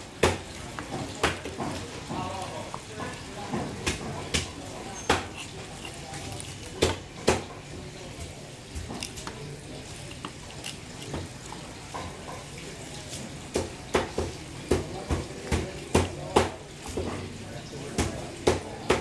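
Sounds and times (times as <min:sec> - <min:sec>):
knife knocking on chopping block: 0:00.2 - 0:05.5
knife taps and scrapes: 0:00.2 - 0:17.3.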